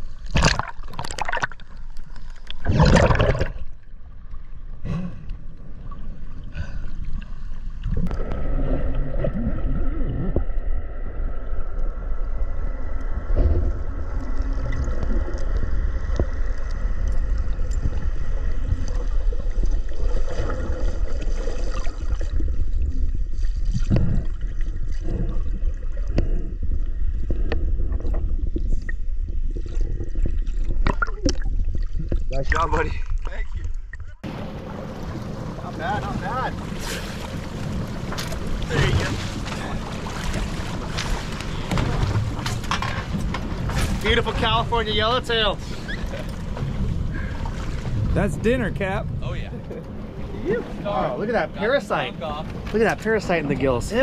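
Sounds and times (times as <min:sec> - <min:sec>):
gurgling bubbles: 0:00.0 - 0:03.9, 0:04.8 - 0:35.7
muffled underwater rumble: 0:00.0 - 0:54.0.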